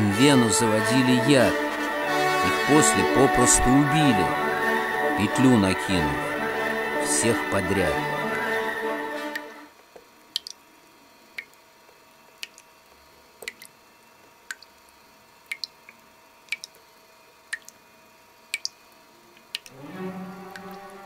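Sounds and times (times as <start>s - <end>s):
faint steady hum: 0.0s - 21.0s
water dripping: 9.3s - 10.6s, 11.3s - 13.8s, 14.4s - 19.8s, 20.4s - 20.9s.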